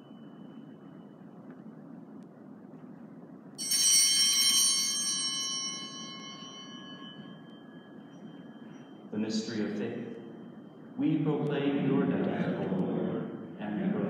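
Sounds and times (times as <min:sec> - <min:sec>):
altar bell ringing: 0:03.6 - 0:11.0.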